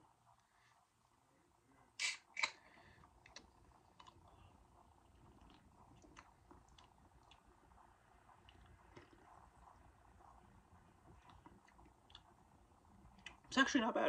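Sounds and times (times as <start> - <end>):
mouth clicks and swallows: 2.0 - 9.9.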